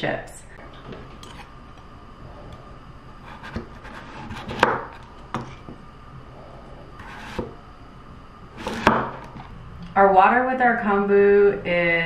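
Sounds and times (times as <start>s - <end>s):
knife cutting root on wooden board: 3.2s - 5.6s.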